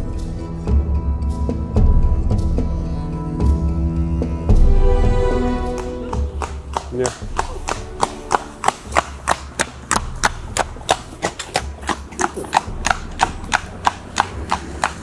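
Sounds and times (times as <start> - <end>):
horse hooves on tarmac: 4.6 - 15.0.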